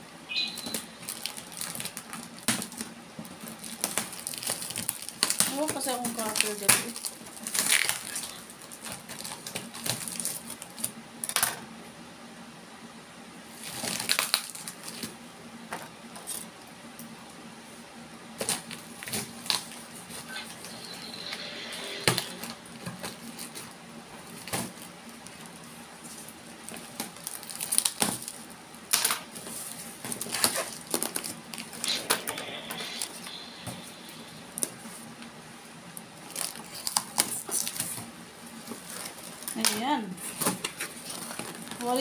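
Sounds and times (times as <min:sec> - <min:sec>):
cardboard and plastic rustling: 0:00.7 - 0:11.0, 0:13.5 - 0:16.5, 0:18.4 - 0:20.8, 0:22.4 - 0:32.2, 0:36.1 - 0:42.0.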